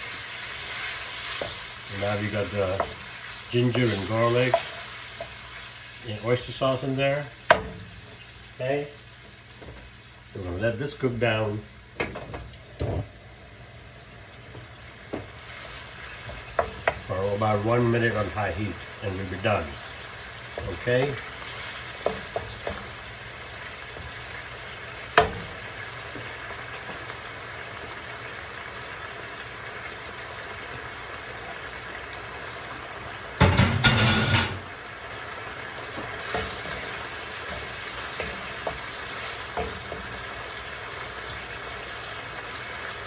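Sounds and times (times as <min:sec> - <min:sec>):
vegetables sizzling in a skillet: 0:00.0 - 0:43.0
wooden spoon knocking a pan: 0:02.6 - 0:03.0, 0:03.6 - 0:05.4, 0:07.5 - 0:08.0, 0:16.2 - 0:17.1, 0:22.0 - 0:23.1, 0:25.1 - 0:27.2, 0:33.4 - 0:34.6.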